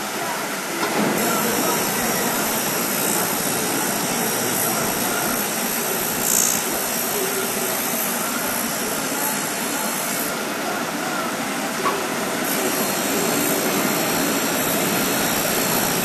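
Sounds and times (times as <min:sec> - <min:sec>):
machine running: 0:00.0 - 0:16.0
grinding wheel on steel blade: 0:01.2 - 0:10.4, 0:12.4 - 0:16.0.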